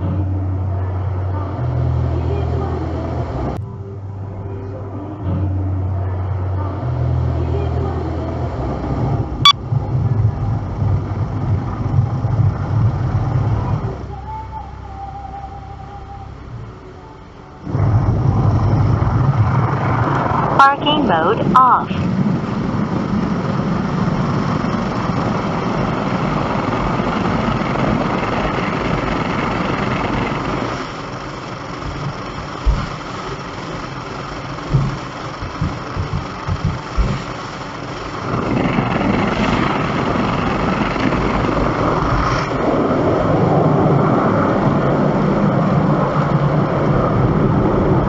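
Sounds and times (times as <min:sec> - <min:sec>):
car road and engine noise: 0:00.0 - 0:48.0
low thumps: 0:31.8 - 0:33.2, 0:34.6 - 0:37.4.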